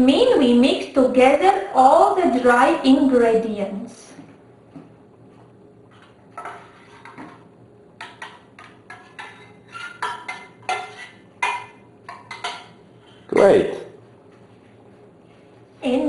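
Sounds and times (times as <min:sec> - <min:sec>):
spatula stirring in glass bowl: 0:05.8 - 0:13.3
metal spoon scraping saucepan: 0:08.0 - 0:13.2.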